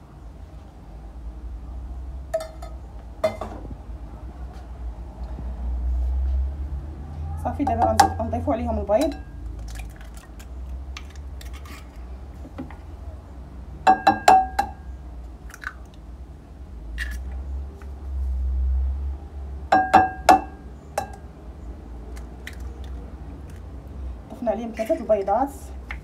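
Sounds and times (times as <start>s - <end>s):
eggs knocking on glass bowl: 7.6s - 8.2s, 13.9s - 14.8s, 19.7s - 21.2s.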